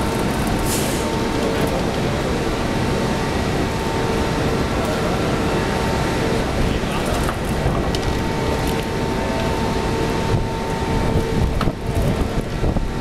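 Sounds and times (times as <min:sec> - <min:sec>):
wind rumbling on microphone: 0:06.4 - 0:13.0.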